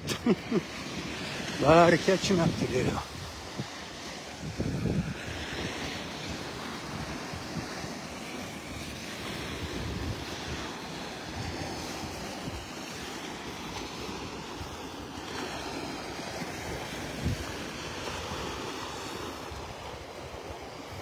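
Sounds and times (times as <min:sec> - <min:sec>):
waves washing onto sand: 0:00.0 - 0:21.0
wind buffeting microphone: 0:00.9 - 0:14.8, 0:15.4 - 0:21.0.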